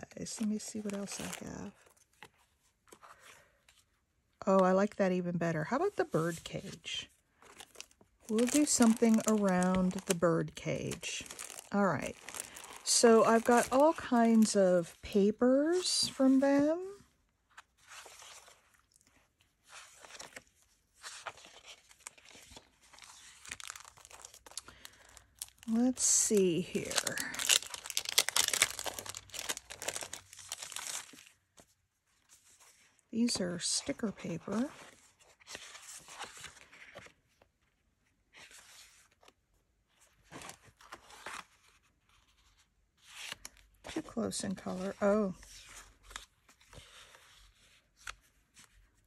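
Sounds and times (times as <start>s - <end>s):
paper rustling and crinkling: 0.2s - 4.0s, 6.0s - 49.0s.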